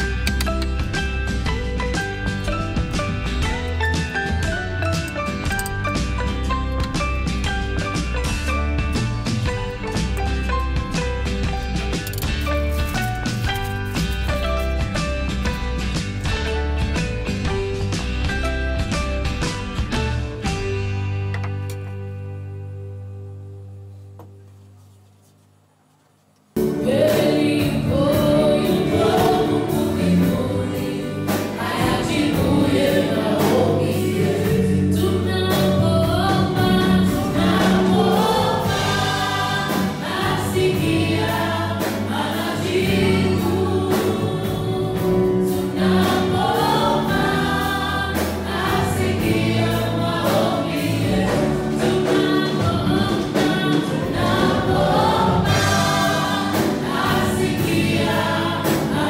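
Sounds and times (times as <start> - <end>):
instrumental backing with beat: 0.0 - 22.0
group singing gospel song: 26.6 - 59.0.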